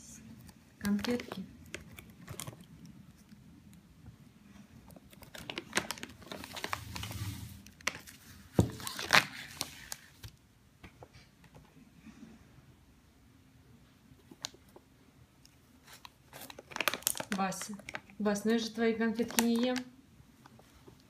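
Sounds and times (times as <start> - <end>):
plastic bag crinkling: 0.8 - 3.3, 4.9 - 10.2, 15.8 - 19.9.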